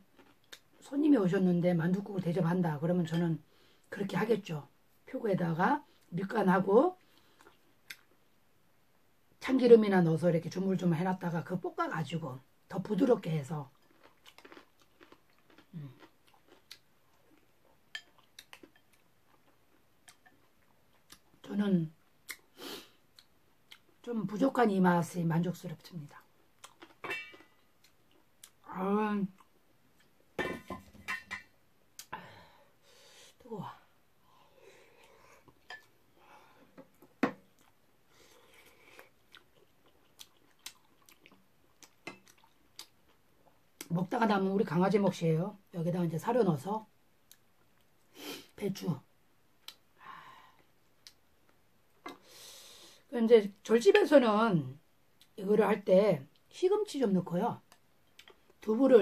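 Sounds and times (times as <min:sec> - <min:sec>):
person chewing: 0:00.0 - 0:00.8, 0:13.7 - 0:21.4, 0:23.1 - 0:24.0, 0:26.4 - 0:28.7, 0:29.4 - 0:30.2, 0:36.9 - 0:43.9, 0:57.7 - 0:58.6
chopsticks and spoon clinking bowl: 0:27.0 - 0:27.7.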